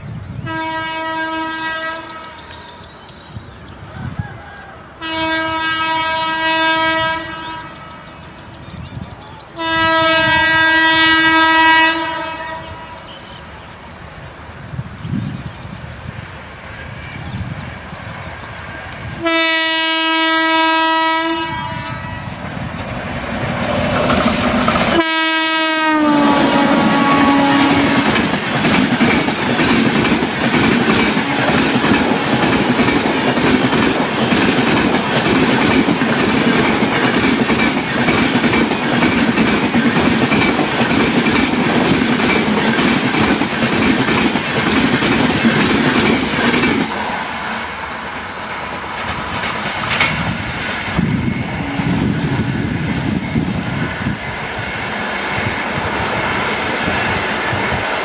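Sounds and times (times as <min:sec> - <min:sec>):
locomotive horn blasts: 0:00.5 - 0:02.4, 0:05.0 - 0:08.0, 0:09.6 - 0:13.0, 0:19.2 - 0:22.3, 0:24.9 - 0:28.2
train wheels clicking over rail joints: 0:22.5 - 0:25.1, 0:27.5 - 0:47.4, 0:48.0 - 0:51.6.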